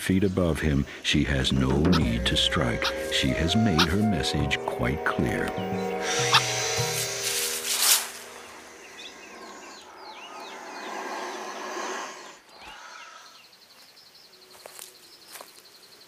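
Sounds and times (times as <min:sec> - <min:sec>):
pulsing insect trill: 0:00.5 - 0:10.3
bird chirps: 0:00.6 - 0:11.6.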